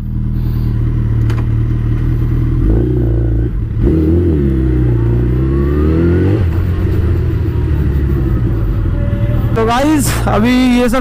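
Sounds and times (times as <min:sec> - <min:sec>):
motorcycle engine revving: 0:00.0 - 0:10.3.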